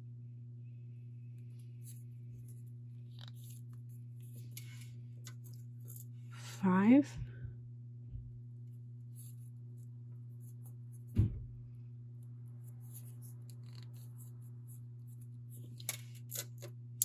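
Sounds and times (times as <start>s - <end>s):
low hum: 0.0s - 17.0s
thump: 11.1s - 11.6s.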